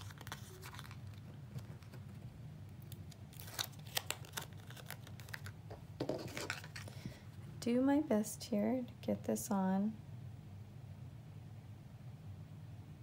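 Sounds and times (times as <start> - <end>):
paper rustling: 0.0 - 2.3, 3.0 - 7.2
low steady hum: 0.0 - 13.0.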